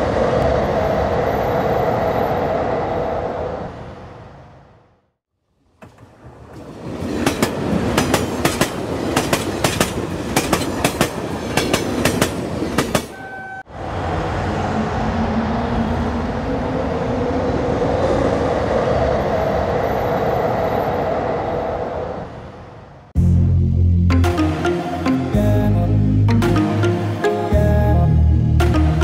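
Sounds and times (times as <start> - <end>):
train wheels clicking over rail joints: 5.8 - 13.2
train rumble with humming drone: 5.8 - 24.2
brief tone: 13.1 - 13.6.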